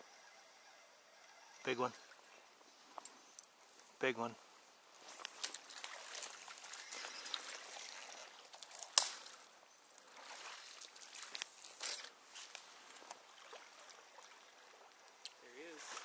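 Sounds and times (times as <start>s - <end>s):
water splashing and trickling: 5.0s - 16.0s.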